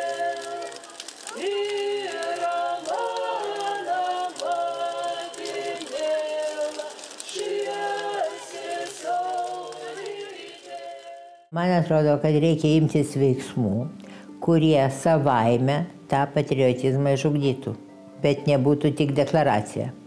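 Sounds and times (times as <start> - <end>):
voices singing unaccompanied: 0.0 - 11.5.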